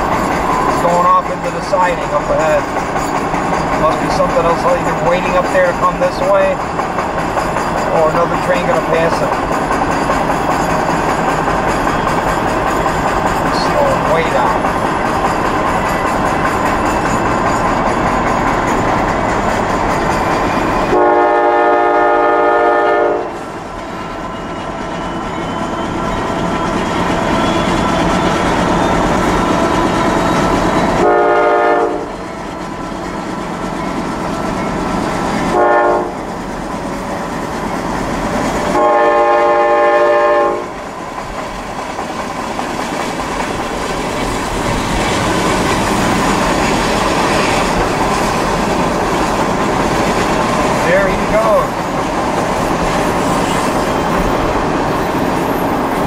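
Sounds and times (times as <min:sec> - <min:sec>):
train rolling along rails: 0:00.0 - 0:56.0
locomotive air horn: 0:20.9 - 0:23.4, 0:31.0 - 0:32.2, 0:35.5 - 0:36.2, 0:38.7 - 0:40.7.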